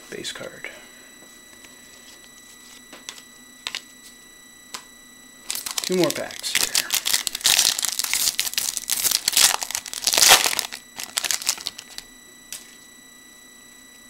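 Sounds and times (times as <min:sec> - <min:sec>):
computer fan whine: 0:00.0 - 0:14.0
wrapper tearing and crinkling: 0:05.5 - 0:12.0.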